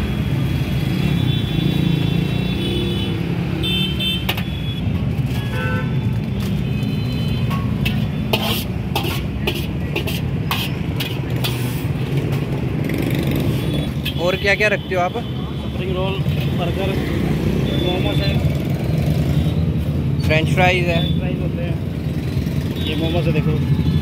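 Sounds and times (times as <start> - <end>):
metal clattering against wok: 7.4 - 12.5.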